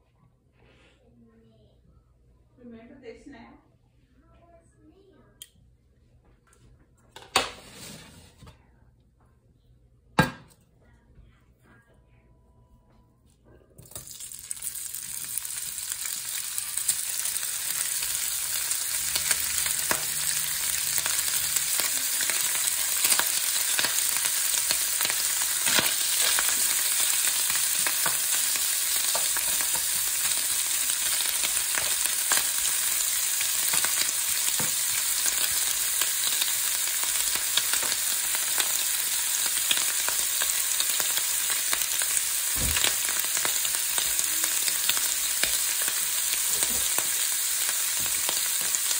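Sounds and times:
ham sizzling in hot oil: 0:13.9 - 0:48.9.

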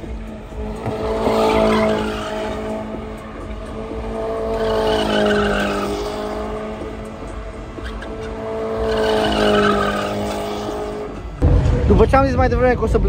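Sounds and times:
car engine at high revs: 0:00.0 - 0:12.0
tyres squealing: 0:00.8 - 0:11.2.

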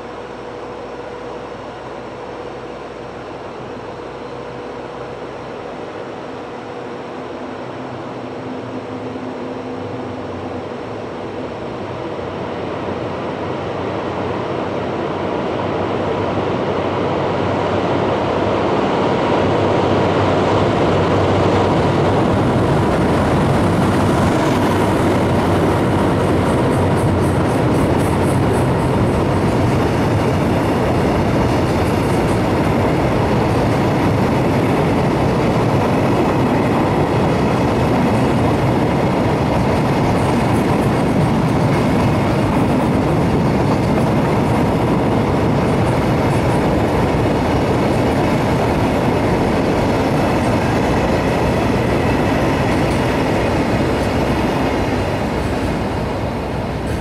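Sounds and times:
diesel locomotive engine running: 0:00.0 - 0:57.0
freight wagons rolling on rails: 0:20.6 - 0:57.0.

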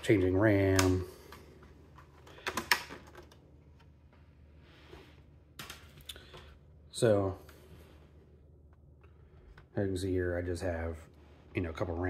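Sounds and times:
soft rustle: 0:11.0 - 0:12.0.

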